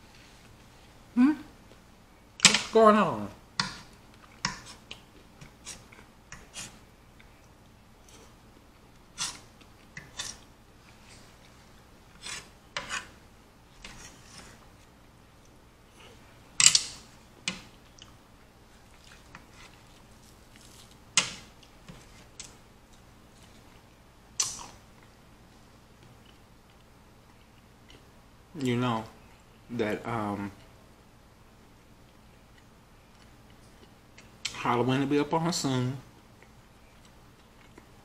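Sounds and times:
fork scraping a plate: 0:04.4 - 0:06.8, 0:09.2 - 0:10.4, 0:12.2 - 0:13.2.

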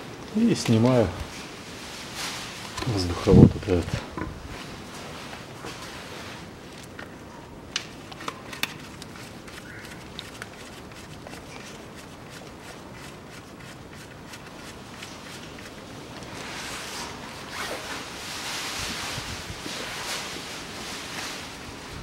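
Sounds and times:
rustling of duct and paper: 0:07.9 - 0:22.0.

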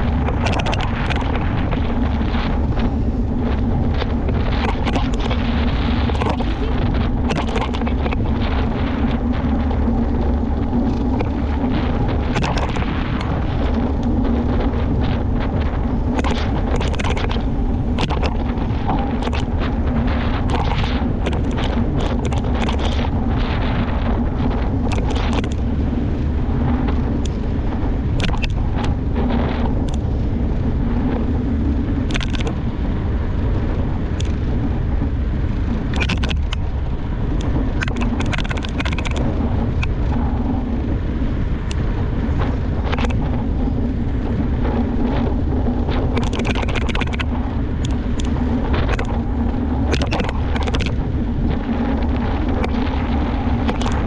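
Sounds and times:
bike clicks and rattles: 0:00.0 - 0:14.4, 0:15.0 - 0:23.8, 0:24.8 - 0:26.3, 0:28.0 - 0:29.0, 0:29.8 - 0:30.0, 0:32.0 - 0:32.6, 0:34.1 - 0:34.4, 0:35.5 - 0:40.6, 0:41.6 - 0:43.8, 0:45.9 - 0:51.1, 0:51.7 - 0:54.0
wind and tyres rumbling: 0:00.0 - 0:54.0.

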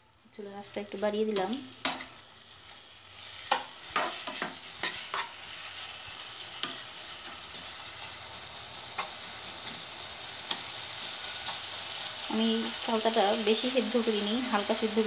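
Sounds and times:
food sizzling in oil: 0:00.0 - 0:15.0
spatula scraping and knocking pan: 0:03.5 - 0:05.6.

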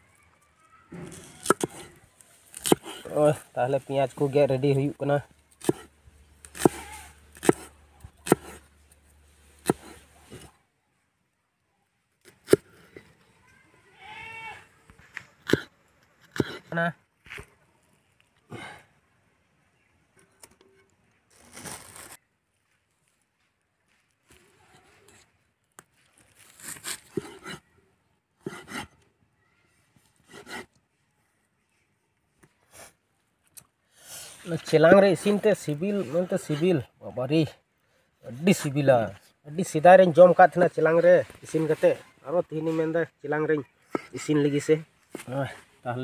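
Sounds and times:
knife chopping on wooden block: 0:01.4 - 0:01.9, 0:02.6 - 0:02.9, 0:05.6 - 0:05.9, 0:06.5 - 0:08.6, 0:09.6 - 0:10.5.

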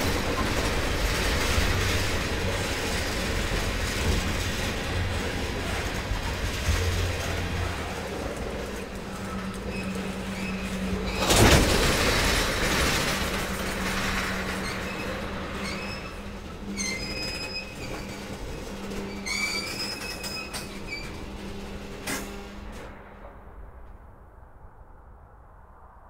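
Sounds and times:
freight train rolling by: 0:00.0 - 0:25.9
high-pitched wheel squeals: 0:09.1 - 0:11.6, 0:14.5 - 0:22.6.

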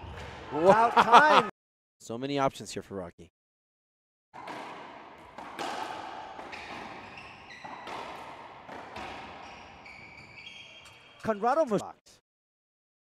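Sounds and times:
ball cracking off racquets and walls: 0:04.4 - 0:11.3
sneaker squeaks on hardwood floor: 0:04.4 - 0:11.5.

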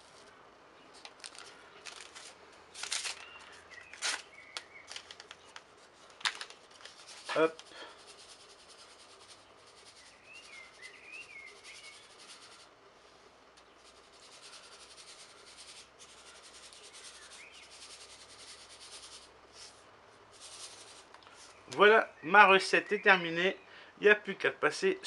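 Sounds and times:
sugar trickling from sachet: 0:01.2 - 0:12.7
faint chirps: 0:09.8 - 0:12.7.

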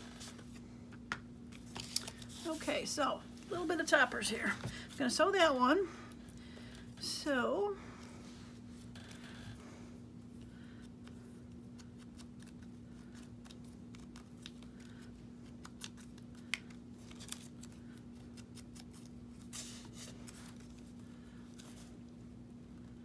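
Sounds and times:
faint steady hum: 0:00.0 - 0:23.0
paper rustling: 0:01.5 - 0:02.7.

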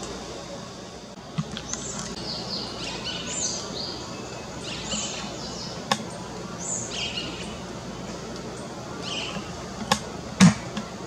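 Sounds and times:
steady background hiss: 0:00.0 - 0:11.0
bird calling: 0:01.4 - 0:11.0.

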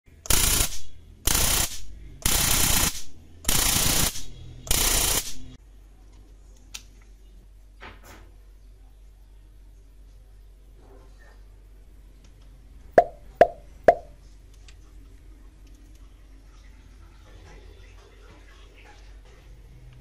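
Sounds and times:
electric arcing bursts: 0:00.2 - 0:05.6.

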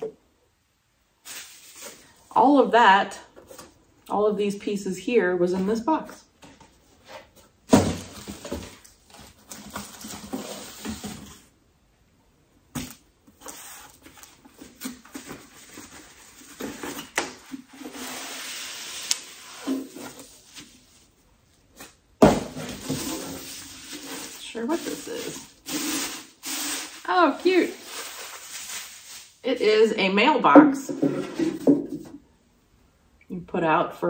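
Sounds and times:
cardboard box and paper rustling: 0:22.6 - 0:29.3.

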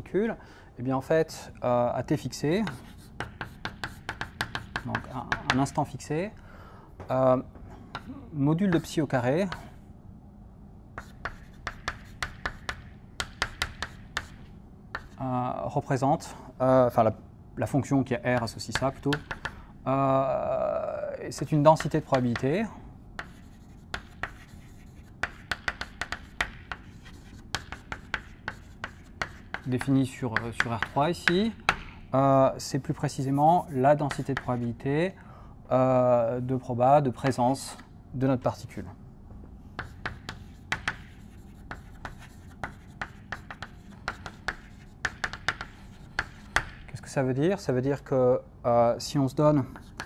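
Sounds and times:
chalk writing on chalkboard: 0:02.6 - 0:05.8, 0:08.7 - 0:09.8, 0:11.0 - 0:15.3, 0:18.4 - 0:19.6, 0:21.3 - 0:22.6, 0:23.2 - 0:31.9, 0:33.1 - 0:34.8, 0:39.7 - 0:46.8, 0:49.7 - 0:50.0.

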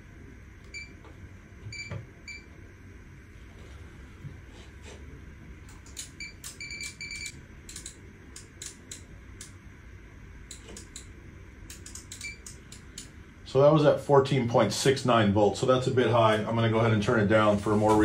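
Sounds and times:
low equipment hum: 0:00.0 - 0:18.0
computer mouse clicks: 0:05.7 - 0:09.6, 0:10.5 - 0:11.1, 0:11.7 - 0:13.1.

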